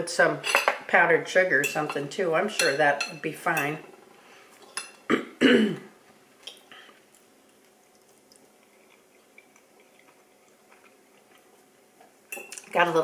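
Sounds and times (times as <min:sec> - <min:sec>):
person chewing food: 0:06.4 - 0:12.6.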